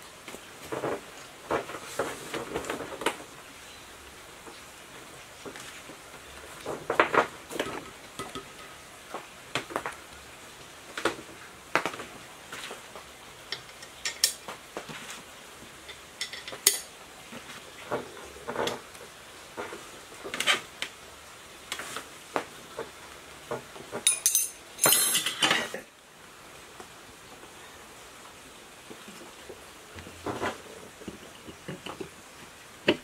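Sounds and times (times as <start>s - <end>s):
light metal clicks and clinks: 24.0s - 25.7s.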